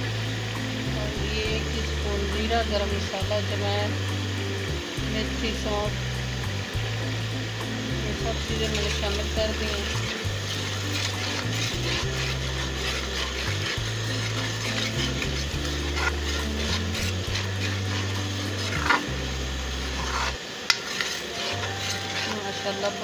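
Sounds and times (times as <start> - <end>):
food sizzling in oil: 0.0 - 23.0
low steady hum: 0.0 - 23.0
metal spoon scraping a pan: 8.0 - 23.0.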